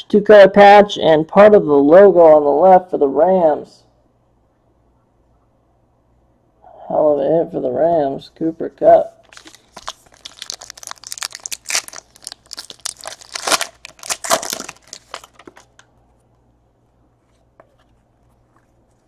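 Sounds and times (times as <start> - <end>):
wrapper tearing and crinkling: 9.2 - 15.8.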